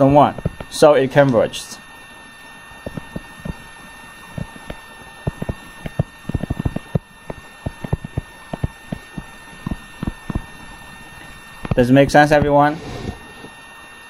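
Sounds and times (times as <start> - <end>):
faint electrical whine: 0.0 - 14.0.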